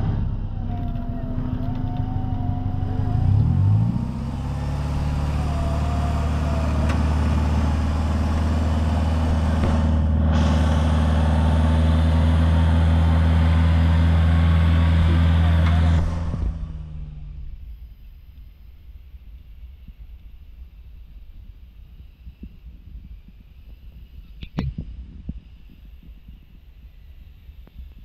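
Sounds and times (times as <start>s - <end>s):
off-road vehicle engine revving: 0.0s - 17.8s.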